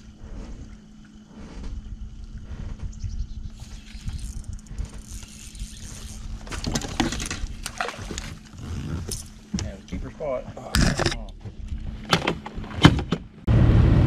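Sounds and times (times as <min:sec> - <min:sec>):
low rumble: 0:00.0 - 0:08.3
steady low hum: 0:00.0 - 0:14.0.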